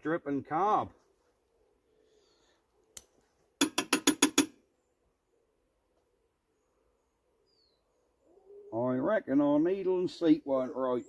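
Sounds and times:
sharp metallic taps: 0:03.6 - 0:04.6.

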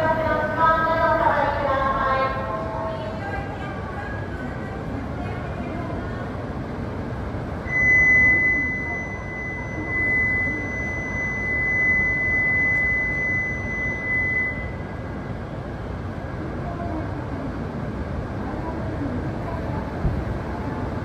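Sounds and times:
train horn long high tone: 0:07.7 - 0:14.9
train rumbling: 0:13.6 - 0:21.0.

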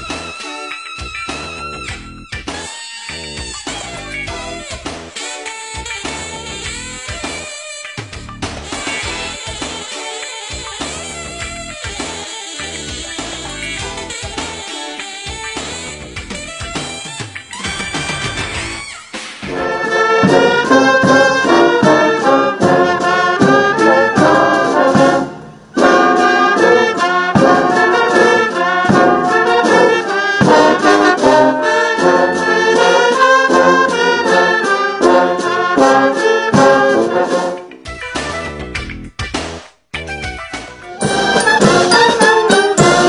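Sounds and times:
brass band playing: 0:08.7 - 0:14.3, 0:19.4 - 0:37.8, 0:41.0 - 0:43.0.

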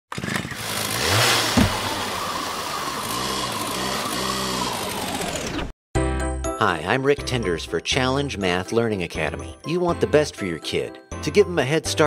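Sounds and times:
chainsaw engine revving: 0:00.1 - 0:05.7
sharp thump: 0:01.5 - 0:02.0.

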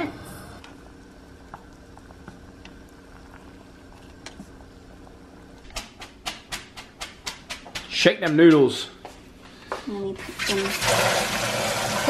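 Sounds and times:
faint steady hum: 0:00.0 - 0:07.2
pot of water boiling: 0:00.0 - 0:08.0, 0:10.0 - 0:12.0.

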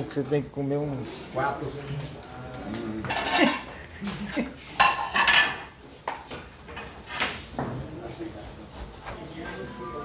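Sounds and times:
cutlery clinking on plates: 0:03.0 - 0:07.4.

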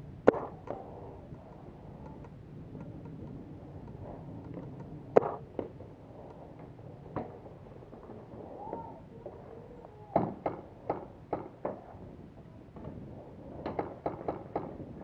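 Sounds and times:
paintball marker shots: 0:00.2 - 0:00.8, 0:05.2 - 0:05.7.

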